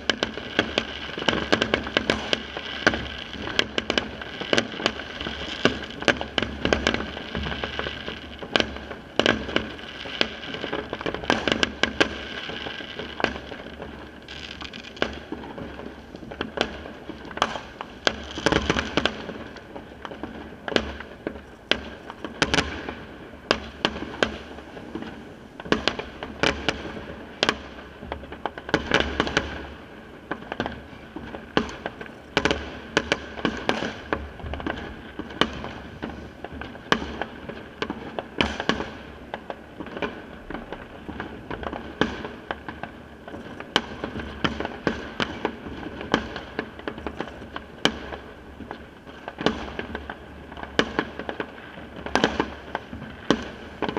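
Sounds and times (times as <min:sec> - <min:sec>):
fireworks and firecrackers banging: 0:00.0 - 0:53.9.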